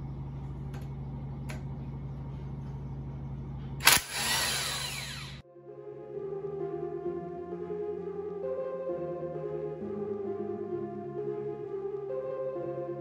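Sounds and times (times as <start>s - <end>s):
steady low hum: 0.0s - 13.0s
impact wrench running: 3.8s - 5.4s
background music: 5.4s - 13.0s.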